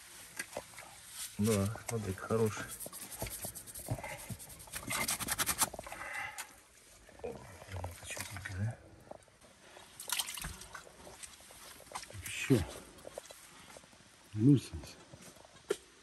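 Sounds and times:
tools scraping in earth: 0.2s - 6.4s.

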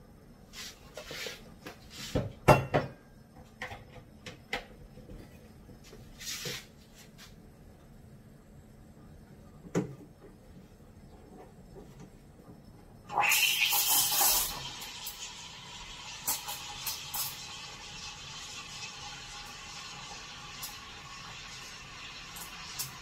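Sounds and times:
knocks and clatters on counter: 2.2s - 3.0s.

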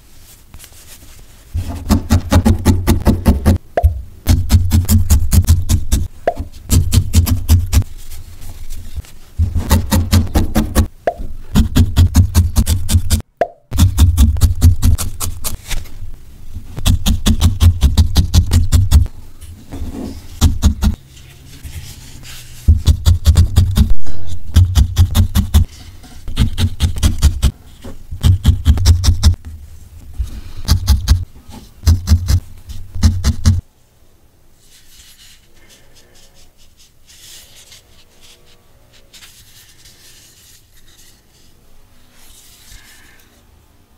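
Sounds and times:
faint handling sounds: 0.0s - 1.8s, 7.8s - 9.6s, 19.1s - 22.7s, 34.5s - 43.6s
felting needle poking into wool: 16.8s - 19.1s, 22.6s - 27.5s, 30.7s - 31.2s, 31.8s - 33.6s.

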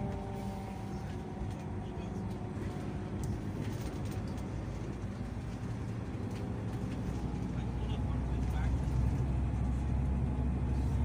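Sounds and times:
engine and road rumble: 0.0s - 11.0s.

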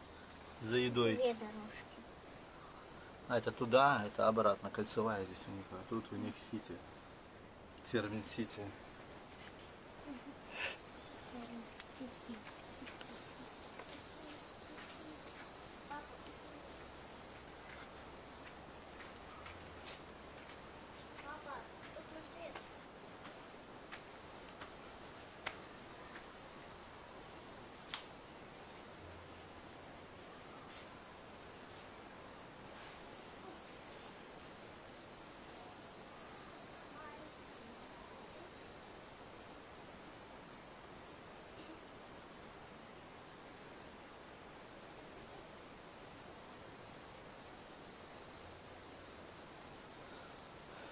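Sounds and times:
high-pitched insect chorus: 0.0s - 50.9s
faint ticks: 27.9s - 28.1s.

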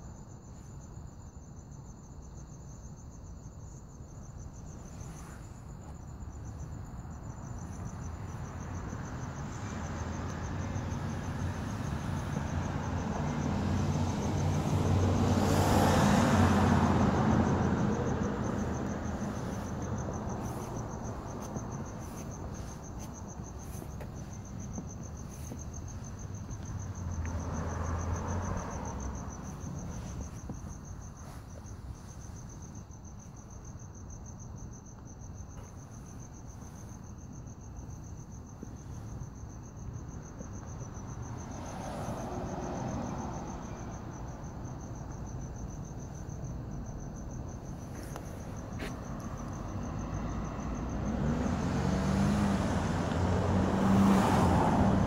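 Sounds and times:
crickets chirping: 0.0s - 55.0s
passing road traffic: 3.6s - 55.0s.

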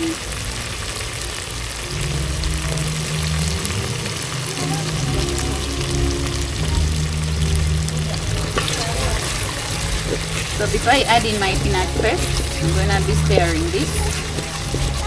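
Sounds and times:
low steady hum: 0.0s - 15.0s
vegetables sizzling in oil: 3.2s - 15.0s.

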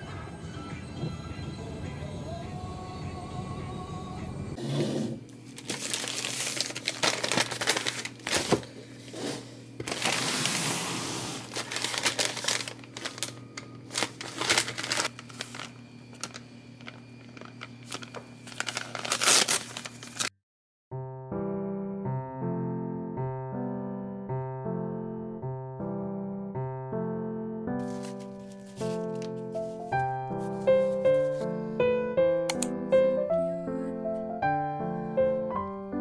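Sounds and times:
packaging crinkling and tearing: 5.5s - 8.8s, 9.8s - 20.3s, 27.8s - 31.5s
faint steady hum: 11.3s - 20.3s
soft piano music: 20.9s - 36.0s.

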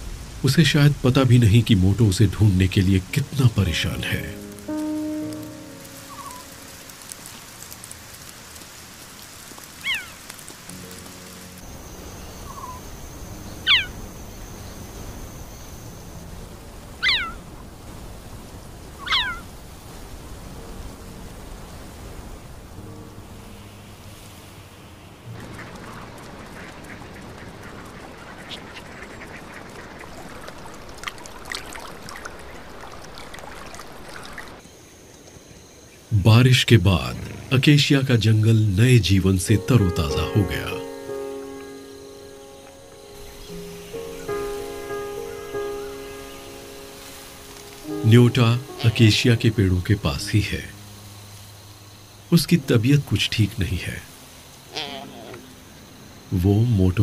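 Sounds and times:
faint rain patter: 0.0s - 57.0s
wings flapping: 5.6s - 11.6s, 25.3s - 34.6s
flock of birds calling: 5.9s - 7.4s, 9.6s - 11.2s, 12.4s - 14.1s, 17.0s - 17.6s, 18.9s - 19.5s, 25.3s - 34.6s
cheetah chirping: 6.0s - 6.6s, 9.8s - 10.2s, 12.2s - 15.1s, 17.0s - 17.5s, 18.9s - 19.5s
water splashing: 15.9s - 34.6s.

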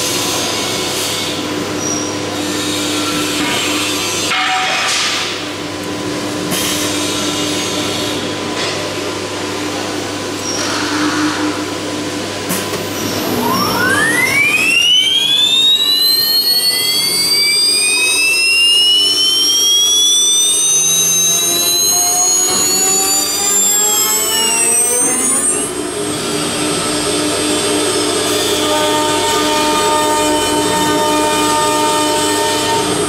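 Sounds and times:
steady machine hum: 8.2s - 33.0s
spindle whine rising in pitch: 12.8s - 32.9s.

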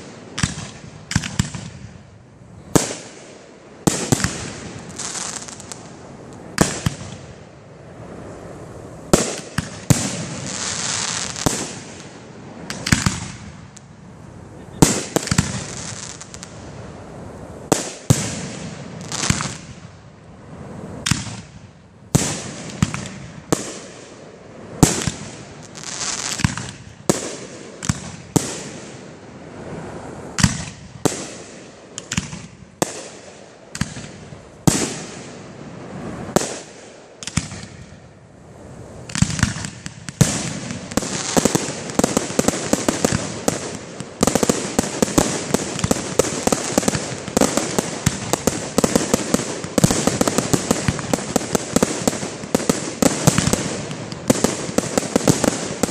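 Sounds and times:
fireworks crackling: 0.0s - 55.9s
firework shells bursting: 9.2s - 13.5s.

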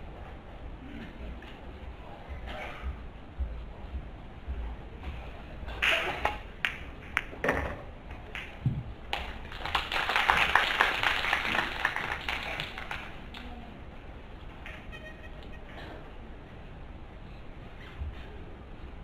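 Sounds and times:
audience applause: 9.1s - 13.4s.

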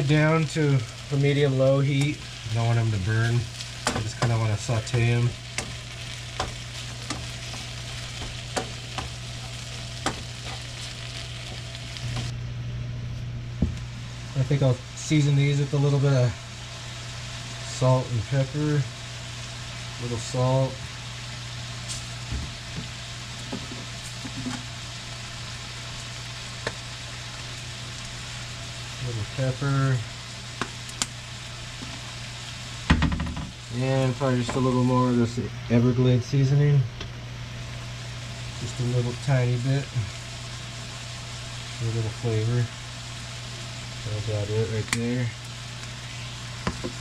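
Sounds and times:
mushrooms sizzling in a frying pan: 0.0s - 12.4s, 13.6s - 47.0s
wooden spatula knocking on pan: 32.9s - 33.5s.

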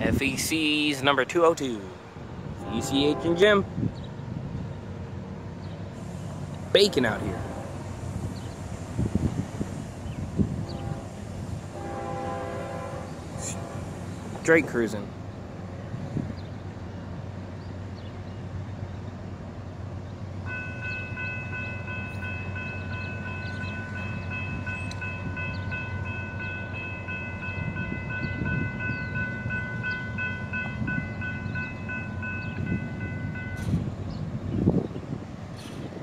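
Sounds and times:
train rumble: 0.0s - 36.0s
locomotive air horn chord: 2.6s - 3.6s, 6.8s - 8.0s, 10.4s - 14.1s.

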